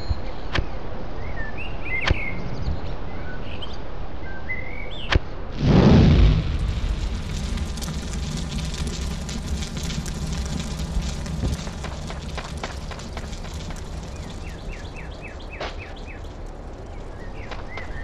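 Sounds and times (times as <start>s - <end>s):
campfire crackling: 5.6s - 18.0s
low rumble: 5.6s - 18.0s.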